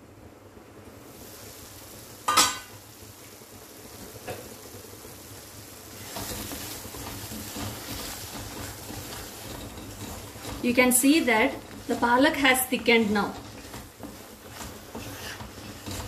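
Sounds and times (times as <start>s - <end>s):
thick puree cooking: 0.7s - 16.0s
wooden spatula scraping: 5.8s - 16.0s.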